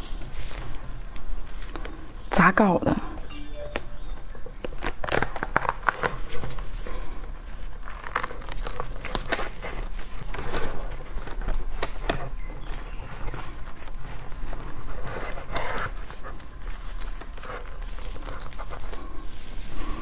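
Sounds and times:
plastic gloves crinkling: 0.0 - 2.3, 3.9 - 20.0
fibrous husk tearing: 4.3 - 20.0.

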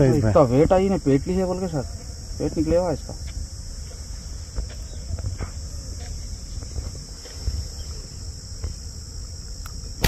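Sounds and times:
insect chorus buzzing: 0.0 - 10.0.

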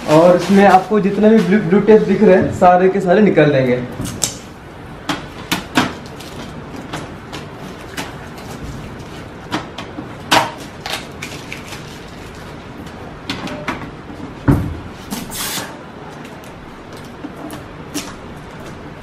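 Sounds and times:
plastic wrap rustling: 0.0 - 2.4, 5.9 - 9.5, 10.2 - 13.1
packing tape peeling: 10.6 - 12.9, 15.0 - 18.6.

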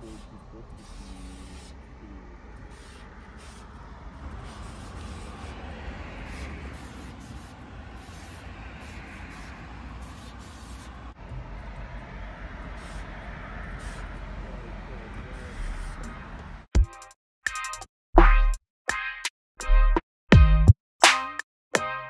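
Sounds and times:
road traffic rumble: 0.0 - 16.7.

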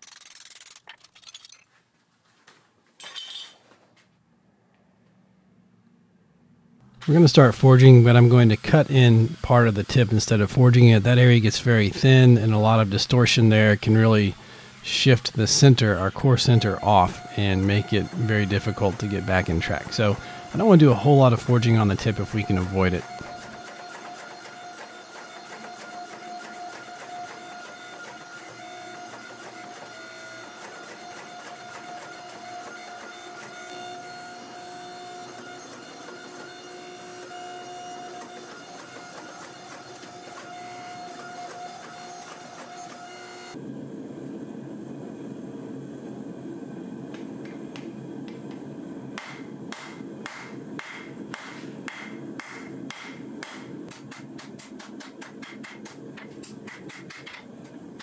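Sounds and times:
hydraulic press whining: 6.9 - 43.6.

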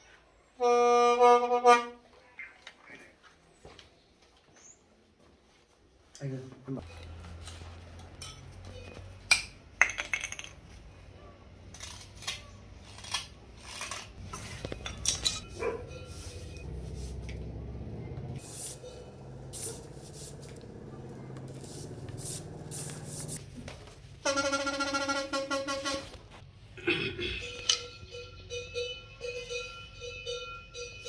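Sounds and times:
knife scraping bamboo: 11.7 - 17.2.

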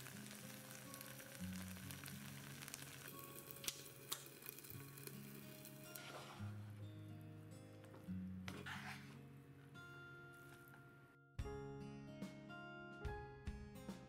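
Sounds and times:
food sizzling in a pot: 0.0 - 6.6
soft background music: 0.0 - 14.0.

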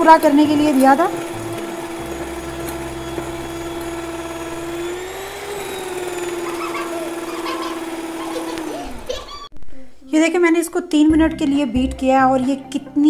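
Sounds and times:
electric hand mixer whining: 0.0 - 9.5.

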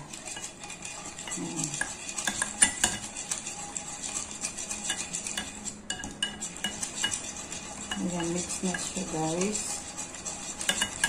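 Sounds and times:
wire whisk clinking on glass bowl: 1.2 - 3.2, 4.7 - 9.7, 10.6 - 11.0.

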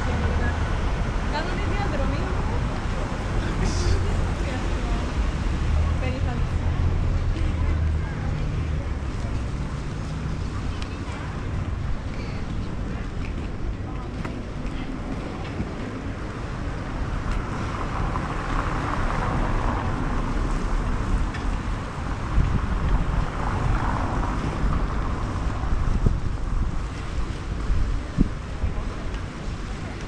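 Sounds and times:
wind on microphone: 9.0 - 30.0.

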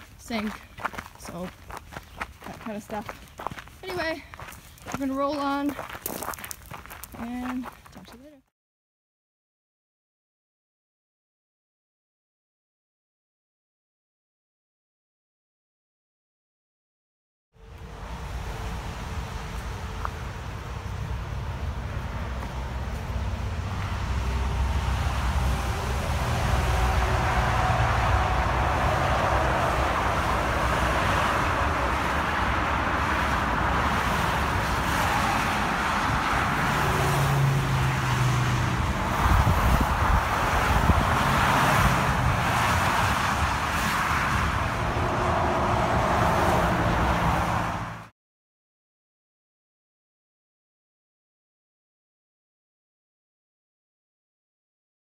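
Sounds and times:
road traffic rushing: 17.6 - 48.1.

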